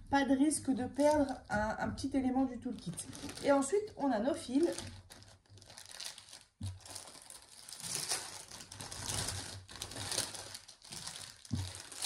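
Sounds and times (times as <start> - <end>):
plastic bag crinkling: 2.6 - 12.0.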